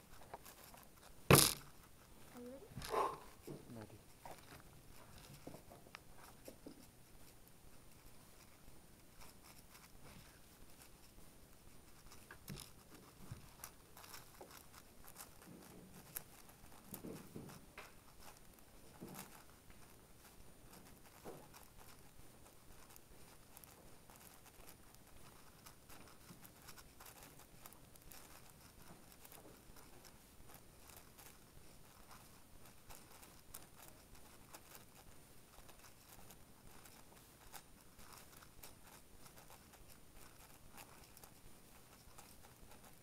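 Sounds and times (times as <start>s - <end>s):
puzzle cube clicking and rustling: 0.0s - 8.6s, 9.2s - 43.0s.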